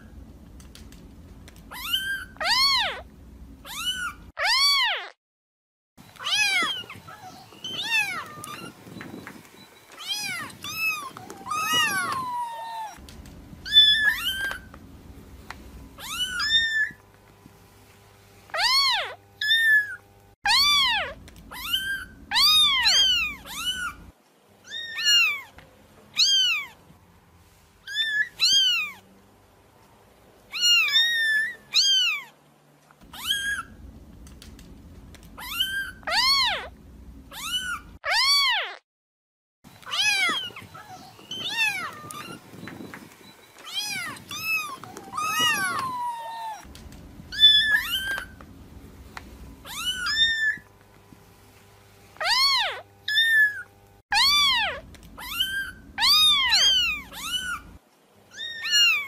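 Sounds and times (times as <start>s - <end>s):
kitten mewing: 1.7s - 3.0s, 3.6s - 5.1s, 16.0s - 17.0s, 18.6s - 24.0s, 35.4s - 36.7s, 37.3s - 38.8s, 43.7s - 46.7s, 47.3s - 48.4s, 49.6s - 50.6s, 52.2s - 59.0s.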